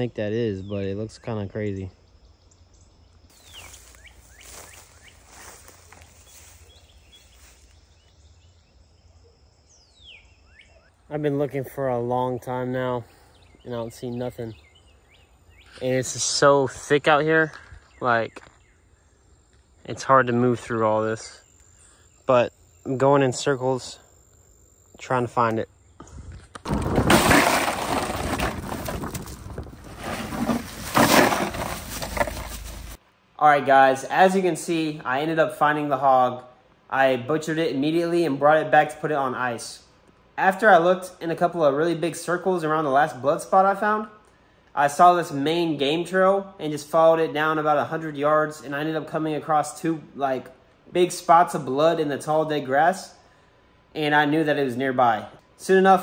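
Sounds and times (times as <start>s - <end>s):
birds whistling falling notes: 2.7s - 8.5s
rustling through long grass: 3.3s - 7.8s, 27.4s - 33.0s
crushed ice rattling into cooler: 26.7s - 33.0s.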